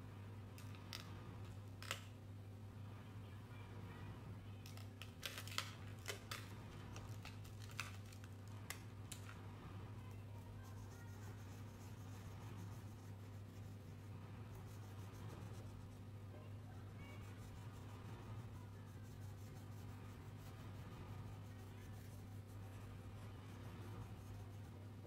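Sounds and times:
low electrical hum: 0:00.0 - 0:25.0
crayons clattering in box: 0:04.6 - 0:09.3
crayon scratching on paper: 0:10.5 - 0:16.1, 0:16.9 - 0:25.0.

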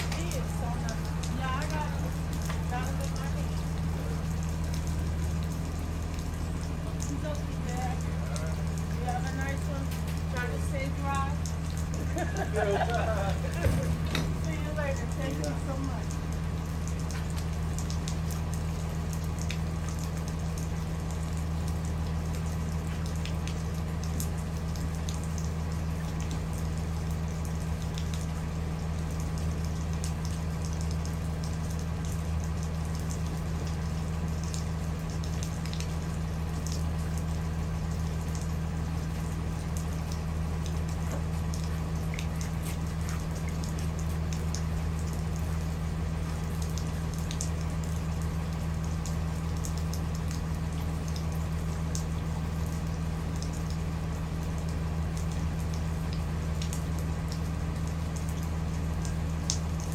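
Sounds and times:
raindrops ticking: 0:00.0 - 0:59.9.

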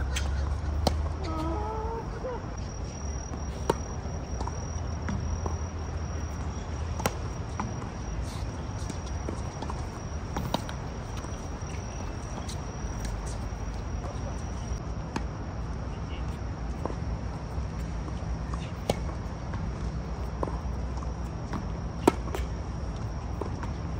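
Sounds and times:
tennis balls struck with rackets: 0:00.0 - 0:01.6, 0:02.6 - 0:12.5
tennis ball bounces: 0:00.1 - 0:01.6, 0:02.6 - 0:14.4.

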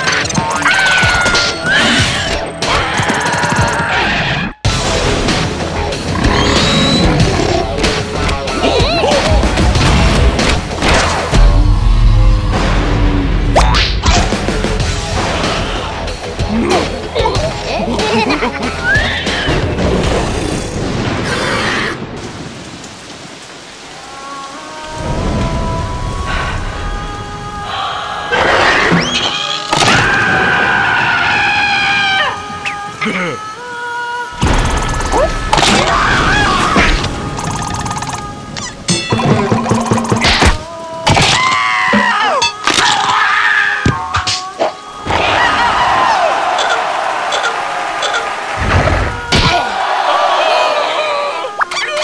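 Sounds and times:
music: 0:00.0 - 0:21.0, 0:32.1 - 0:45.5
steady rain: 0:19.8 - 0:28.5.

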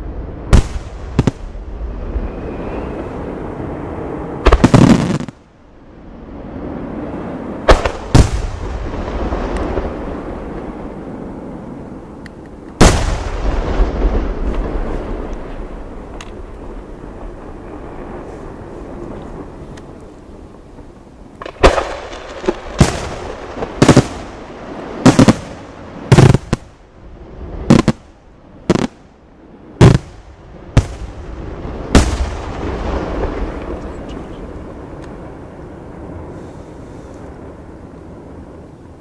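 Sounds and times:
rumble: 0:00.0 - 0:39.0
firework bangs: 0:00.4 - 0:05.5, 0:07.6 - 0:10.9, 0:12.8 - 0:19.8, 0:21.4 - 0:29.1, 0:29.8 - 0:34.9.

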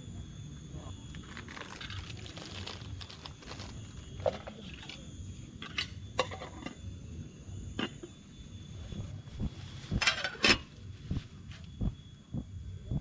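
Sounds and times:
insect chirring: 0:00.0 - 0:13.0.

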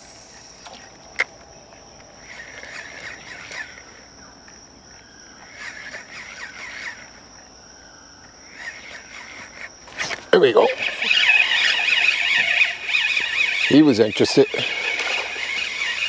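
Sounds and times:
insects droning: 0:00.0 - 0:16.0
chattering calls: 0:08.4 - 0:16.0.

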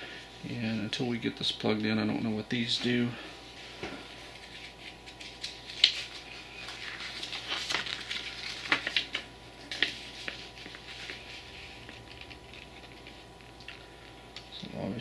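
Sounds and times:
paper rustling and crinkling: 0:03.6 - 0:13.6
sharp paper crackles: 0:04.3 - 0:13.3.

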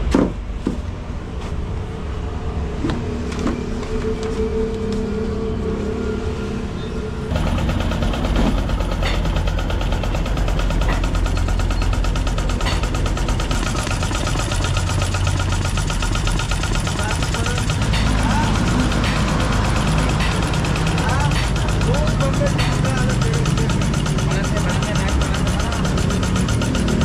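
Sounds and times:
steady machine hum: 0:00.0 - 0:27.0
piston air compressor running: 0:07.3 - 0:27.0.

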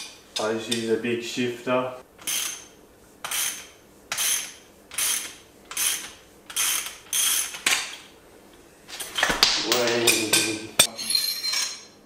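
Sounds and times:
ratchet wrench clicking: 0:03.3 - 0:07.6.

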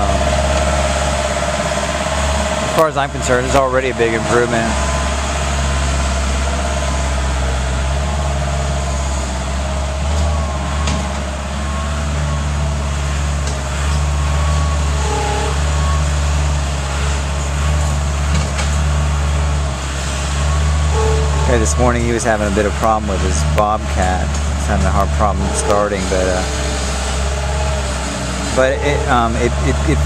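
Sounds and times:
loader engine running: 0:00.0 - 0:30.0.

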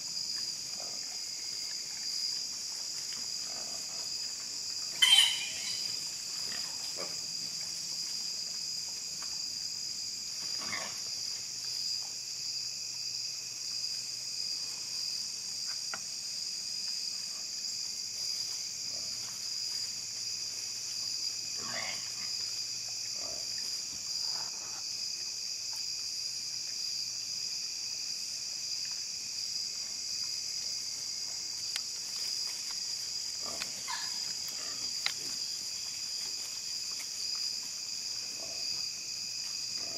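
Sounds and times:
high-pitched insect chorus: 0:00.0 - 0:39.9
hogs grunting and squealing: 0:21.6 - 0:22.3.

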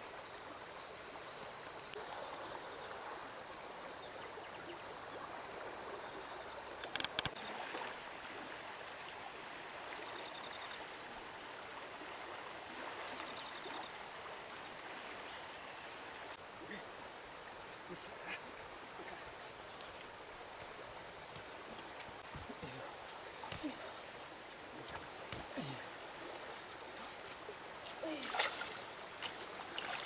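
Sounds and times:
stream flowing over gravel: 0:02.0 - 0:30.0
sharp clicks: 0:06.8 - 0:07.4.

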